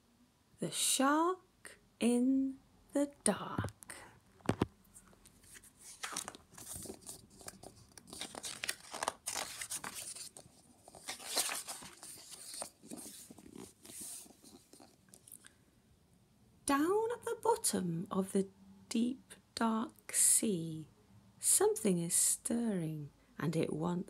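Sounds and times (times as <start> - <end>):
book pages rustling: 4.4 - 15.4.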